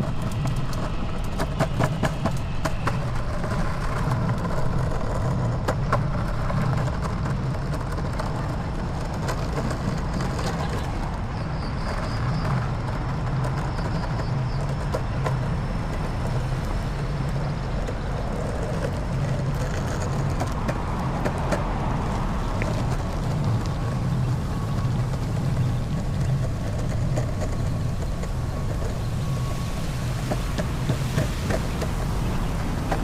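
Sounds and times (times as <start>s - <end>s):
wheels clacking over joints: 0.0s - 33.0s
wheels rumbling on concrete: 0.0s - 33.0s.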